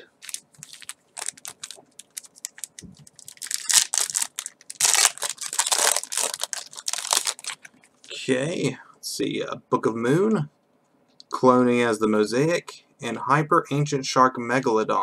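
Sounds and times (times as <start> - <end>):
foil wrapper crinkling and tearing: 0.2 - 7.7.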